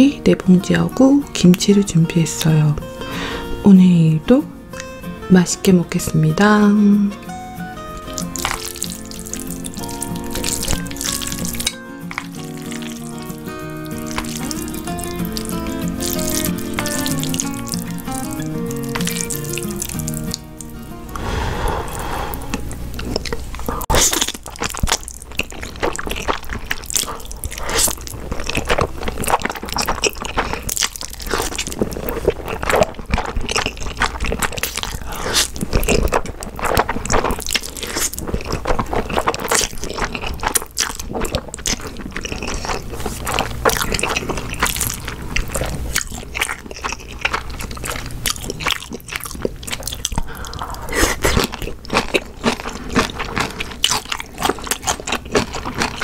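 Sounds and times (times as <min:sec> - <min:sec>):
chewing with wet smacks: 0:08.0 - 0:20.7, 0:22.5 - 0:56.0
slurping noodles: 0:21.1 - 0:24.3, 0:34.3 - 0:40.5, 0:49.8 - 0:51.6.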